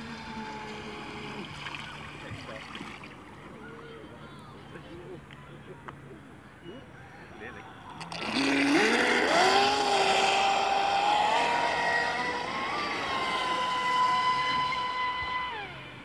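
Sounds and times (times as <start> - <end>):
electric motor whining: 0.0 - 1.9, 8.0 - 16.0.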